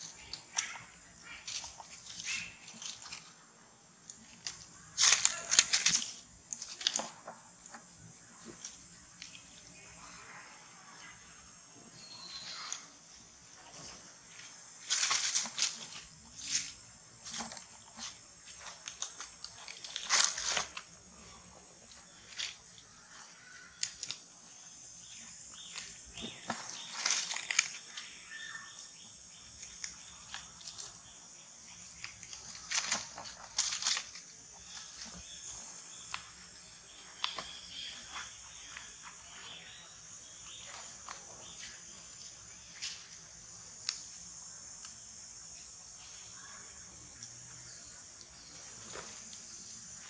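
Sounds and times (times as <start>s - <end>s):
insects droning: 0.0s - 50.0s
rustles in dry leaves: 4.4s - 7.0s, 14.8s - 20.9s, 25.7s - 28.6s, 32.0s - 35.2s.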